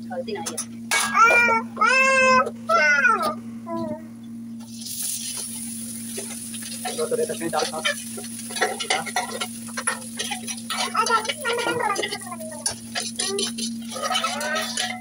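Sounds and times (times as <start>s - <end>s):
rice sizzling in hot oil: 4.6s - 15.0s
spoon knocking and scraping pot: 6.2s - 15.0s.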